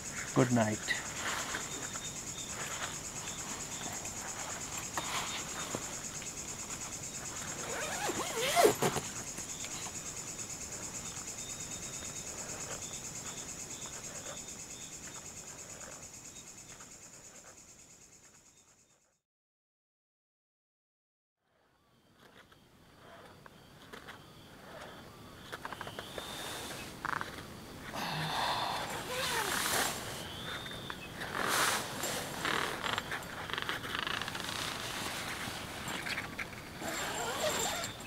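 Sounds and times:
insects chirring: 0.0s - 19.1s, 21.5s - 38.0s
hammock rustling: 1.0s - 11.2s, 24.8s - 38.0s.

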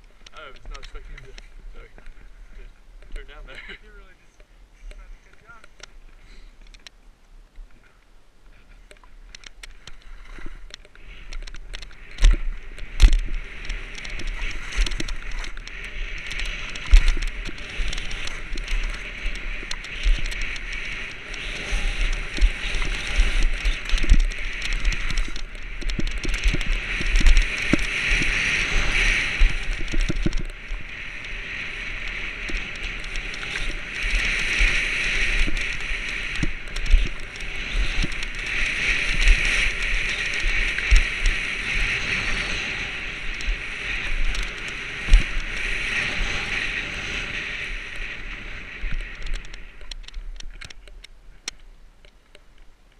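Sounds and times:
skis scraping over snow: 0.0s - 4.2s, 7.8s - 51.0s
wind on microphone: 8.6s - 51.6s.

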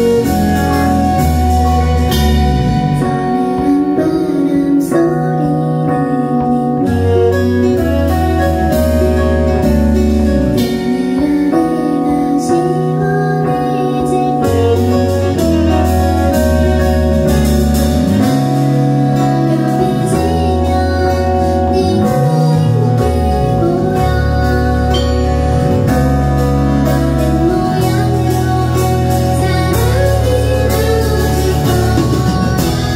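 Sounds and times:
woman singing into a microphone: 0.0s - 9.2s, 10.4s - 32.9s
keyboard playing held low notes: 0.0s - 32.9s.

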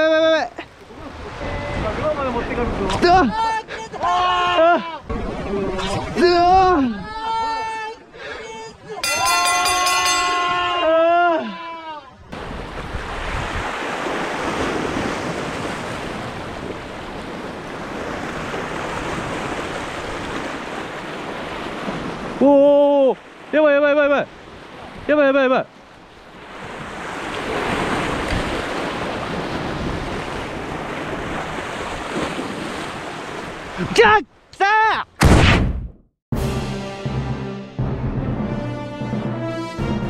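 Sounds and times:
wind on microphone: 12.2s - 20.7s
sea surf washing over rocks: 12.3s - 25.2s.

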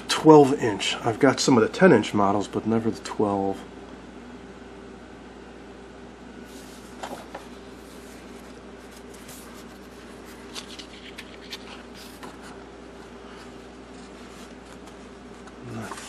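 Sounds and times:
faint steady hum: 0.0s - 16.0s
paper pages rustling: 6.5s - 16.0s.

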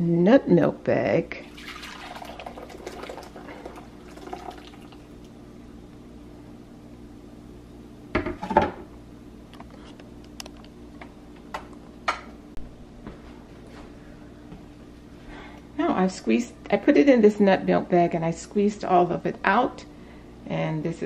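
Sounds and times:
liquid pouring: 1.4s - 5.3s.

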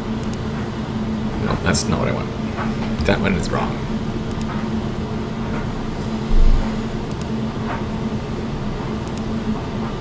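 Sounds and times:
low background hum: 0.0s - 10.0s
dull low thump: 6.3s - 6.9s.

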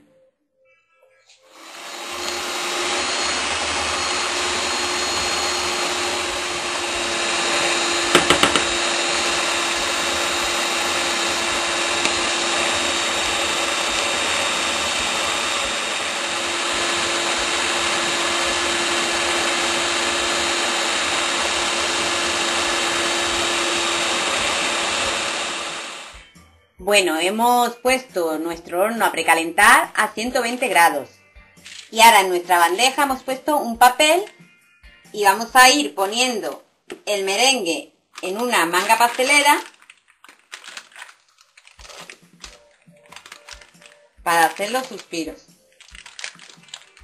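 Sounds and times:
stand mixer humming: 1.6s - 26.1s.

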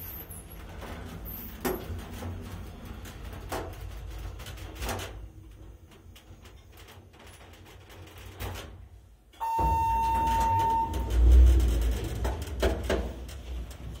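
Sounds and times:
elevator doors sliding open: 0.0s - 14.0s
elevator arrival tone: 9.4s - 12.2s.

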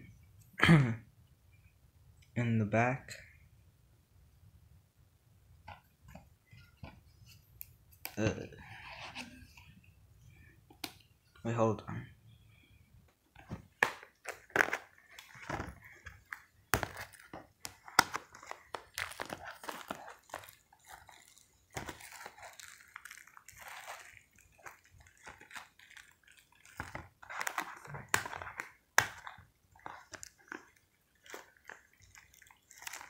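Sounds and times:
plastic wrap crinkling: 13.4s - 33.0s.

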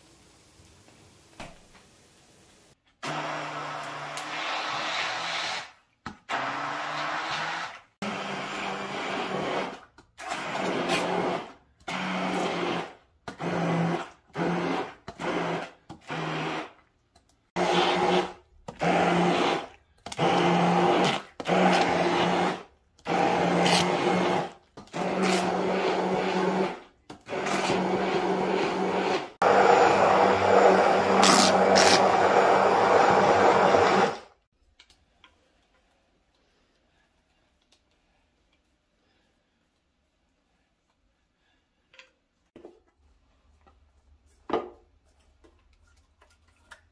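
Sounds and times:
immersion blender grinding beans: 3.0s - 16.8s, 17.6s - 34.4s.

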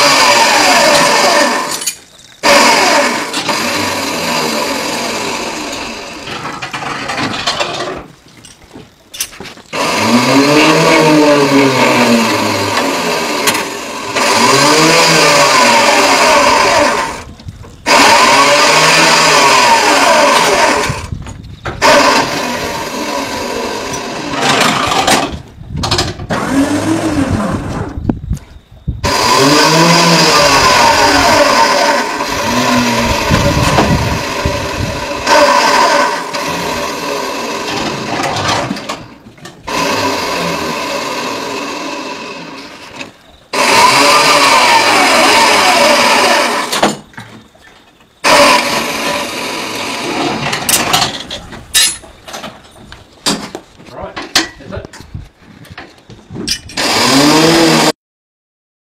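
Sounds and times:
electric motor whining: 0.0s - 6.6s, 9.7s - 25.3s, 26.3s - 28.0s, 29.0s - 39.1s, 39.7s - 46.9s, 48.2s - 50.9s, 56.8s - 58.0s.

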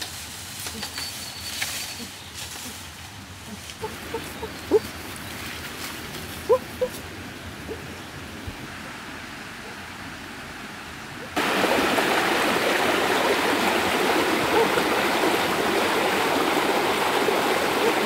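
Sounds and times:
stream rushing over stones: 8.2s - 18.0s.

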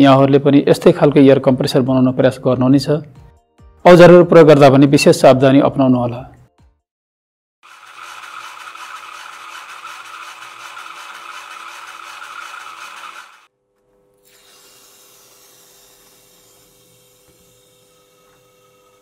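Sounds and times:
gear motor whirring and clattering: 7.6s - 13.5s.

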